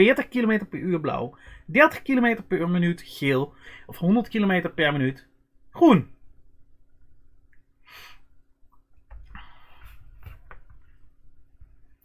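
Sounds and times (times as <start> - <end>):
faint breathing: 1.3 - 1.7, 3.5 - 3.9, 7.8 - 8.4, 9.2 - 11.1.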